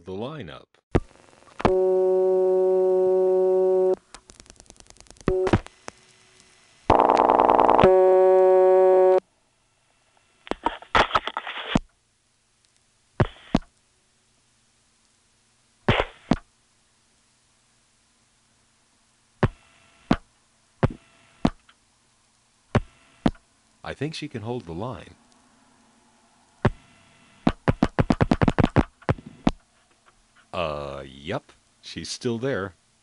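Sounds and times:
short telephone tone: 1.6s - 4.0s, 6.9s - 9.2s
dial-pulse clicks: 1.6s - 9.2s
telephone dial tone: 6.9s - 9.2s.

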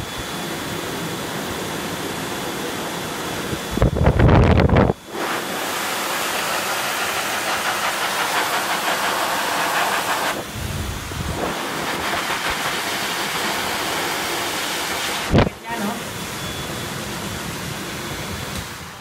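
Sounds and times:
blow dryer blowing air: 0.0s - 19.0s.

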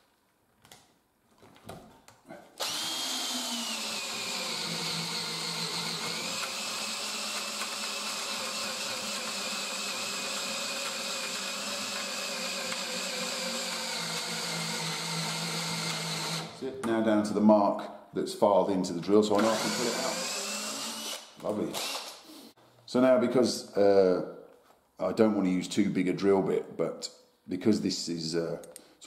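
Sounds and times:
power drill boring into wood: 2.6s - 16.6s, 19.3s - 22.2s.

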